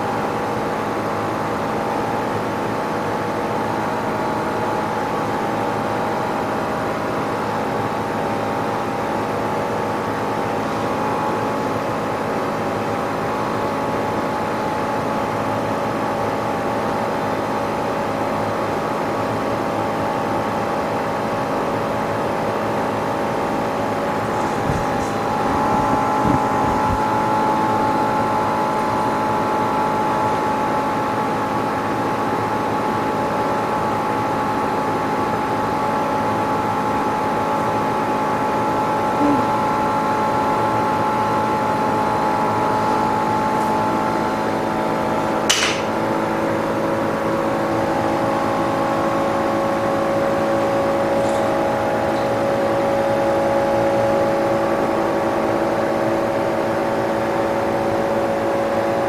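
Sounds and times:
short clicks and knocks: 45.5 - 46.0.

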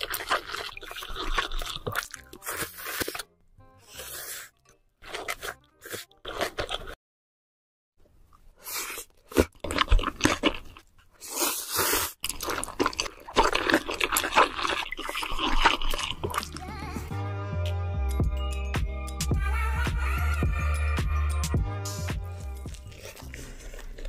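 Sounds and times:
noodle slurping: 0.0 - 3.3, 3.9 - 7.0, 8.6 - 17.1, 21.8 - 24.0
crunchy bites and chewing: 0.0 - 7.0, 8.6 - 16.6, 21.9 - 24.0.

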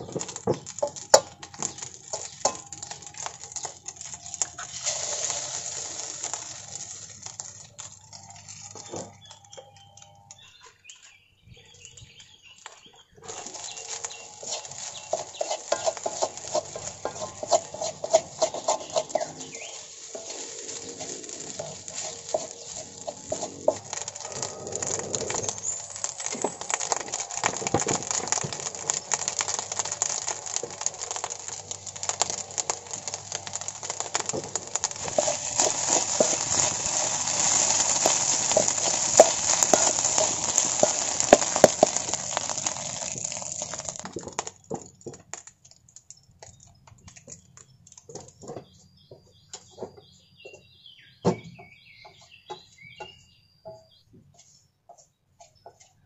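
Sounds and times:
spatula scraping metal wok: 0.0 - 9.0, 13.2 - 44.5
frying hiss: 0.0 - 9.5, 12.5 - 49.4.

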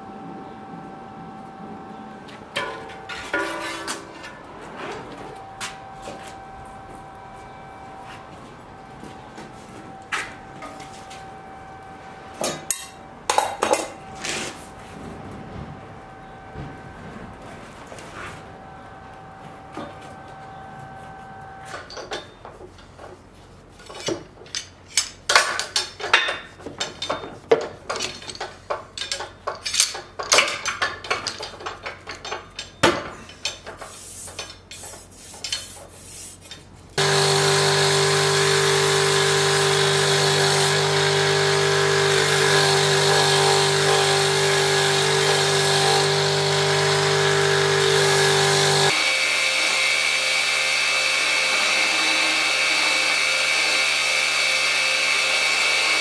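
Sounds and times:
scraping on steel blade: 3.1 - 5.0
belt grinder running: 37.0 - 56.0.

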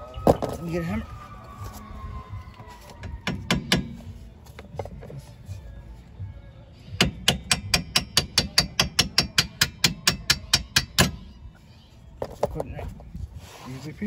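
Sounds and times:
hammer striking metal bolt: 7.0 - 11.2.

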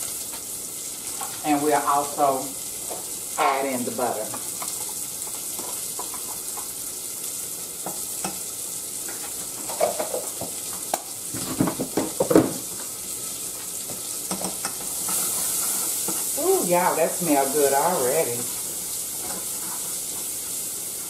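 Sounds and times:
onion sizzling in a pan: 0.0 - 21.0
spoon scraping a pan: 4.3 - 6.8, 9.1 - 10.4, 13.6 - 16.4, 17.4 - 21.0.

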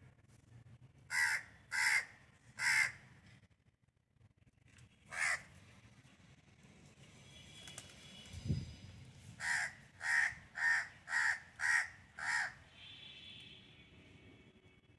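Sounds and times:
bird harsh caw-like calls: 1.1 - 3.1, 5.1 - 5.5, 9.4 - 12.9.

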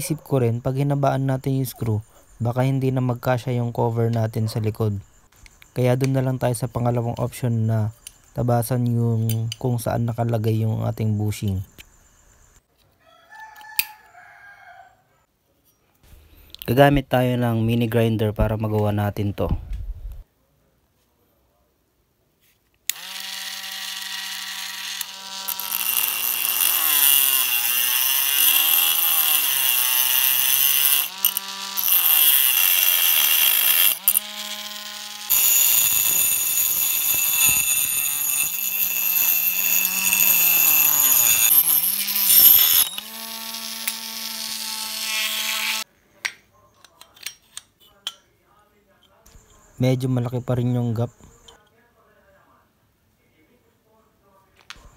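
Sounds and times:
rotary tool cutting metal: 22.9 - 45.9.

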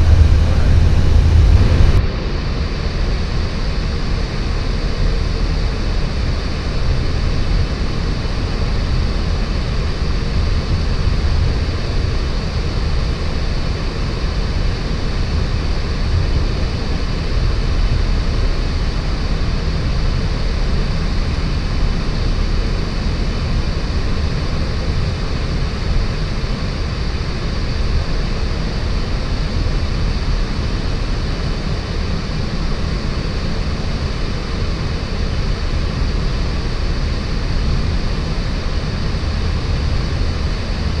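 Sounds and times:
air rushing over cockpit: 0.0 - 2.7
jet engine noise: 0.0 - 41.0.

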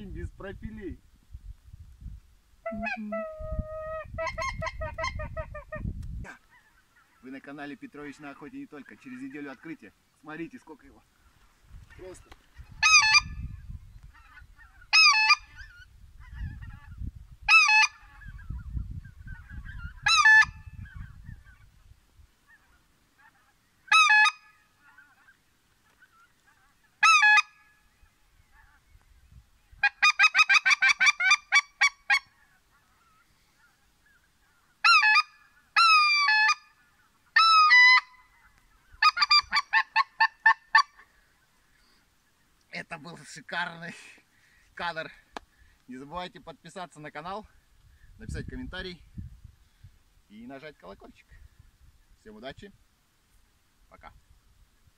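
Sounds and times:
goose call honks: 2.6 - 7.3, 11.9 - 13.5, 14.1 - 18.5, 19.3 - 21.1, 22.5 - 25.4, 26.0 - 27.8, 34.8 - 41.1.

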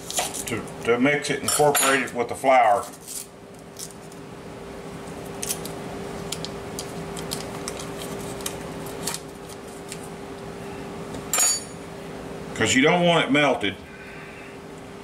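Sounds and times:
background hum: 0.0 - 15.0
paper wrapper crackling: 5.4 - 10.1.

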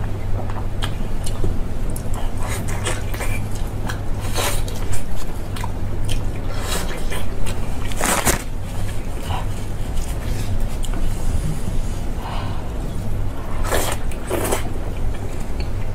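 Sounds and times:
wet chewing and biting: 0.8 - 11.0.

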